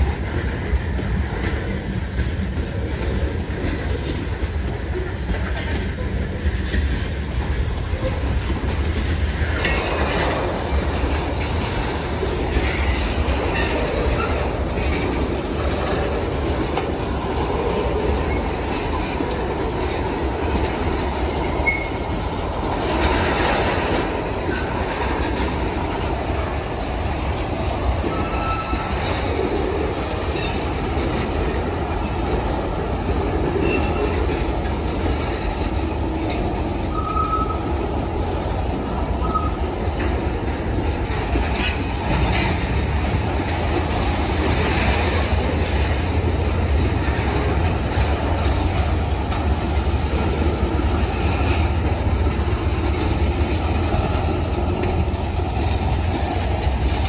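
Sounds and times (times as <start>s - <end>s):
train cars rumbling on rails: 0.0s - 57.0s
wheel squeals: 21.4s - 22.2s, 28.0s - 29.2s, 33.6s - 34.5s, 36.9s - 38.3s, 39.2s - 39.8s.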